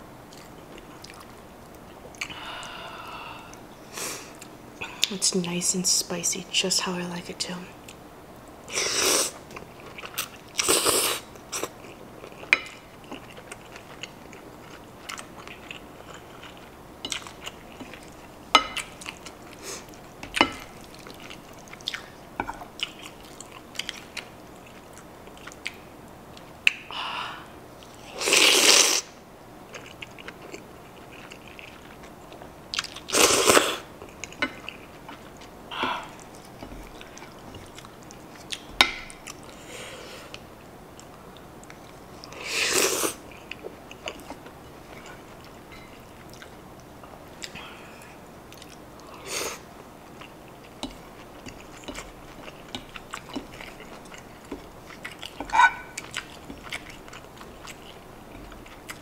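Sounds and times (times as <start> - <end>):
chewing noodles: 0.3 - 2.4, 9.3 - 26.8, 29.7 - 39.6, 41.0 - 59.0
noisy mouthfuls of pasta: 8.7 - 12.0, 28.0 - 29.2, 32.8 - 33.9, 42.2 - 43.3.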